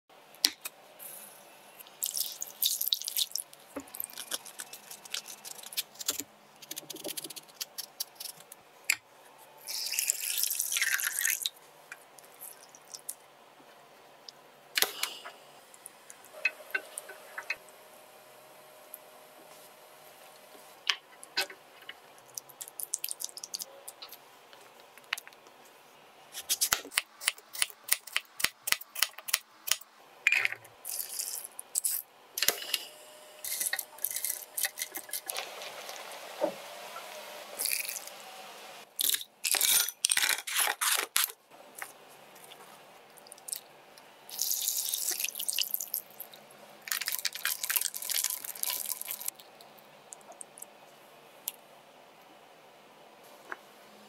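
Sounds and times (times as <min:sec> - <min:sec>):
liquid pouring: 0:02.0 - 0:04.4, 0:44.3 - 0:46.2, 0:46.9 - 0:49.4.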